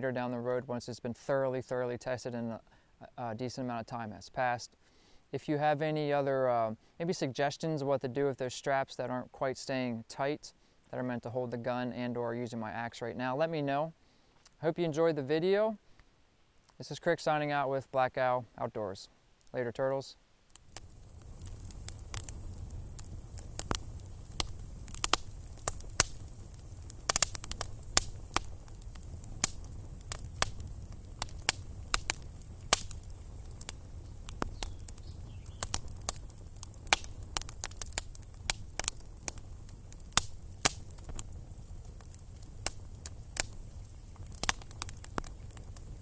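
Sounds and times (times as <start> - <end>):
campfire crackling and popping: 20.4 - 46.0.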